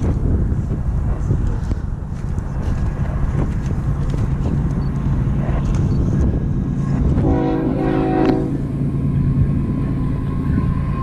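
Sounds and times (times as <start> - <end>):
train rumbling: 0.0 - 11.0
diesel locomotive horn: 7.1 - 8.8.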